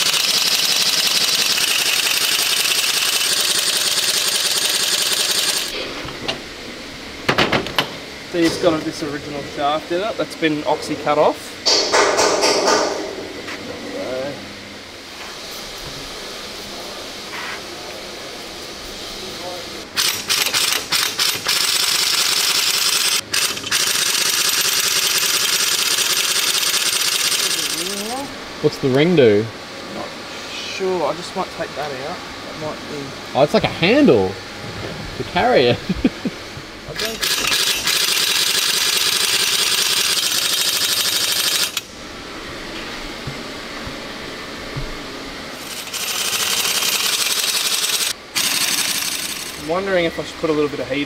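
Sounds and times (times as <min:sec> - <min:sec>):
pneumatic impact wrench rattling: 0:00.0 - 0:05.9, 0:19.9 - 0:28.2, 0:36.9 - 0:41.9, 0:45.6 - 0:49.7.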